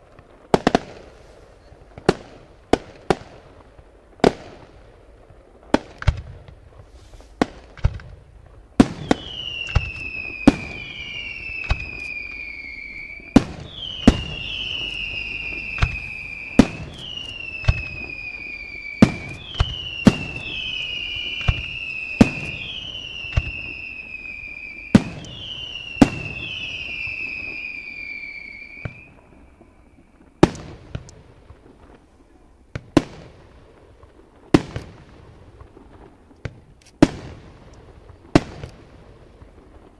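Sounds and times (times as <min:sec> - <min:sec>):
falling firework whistles: 0:08.8 - 0:32.0.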